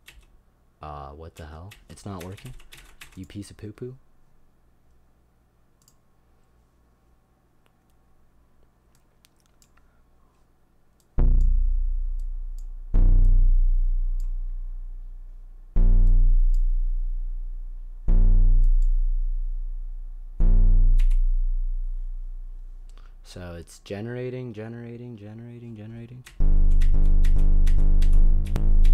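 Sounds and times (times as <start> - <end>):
faint mouse clicks: 5.8 - 6.0, 8.6 - 9.9
low synthesized plucked-string notes: 11.2 - 22.8, 26.4 - 28.9.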